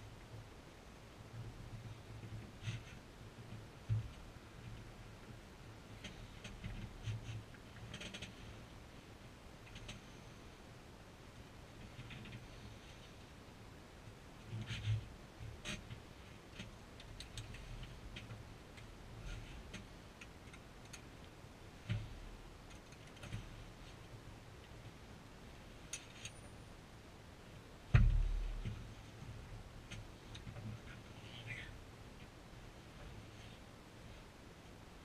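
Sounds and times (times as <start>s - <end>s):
heavy thump: 27.9s - 28.8s.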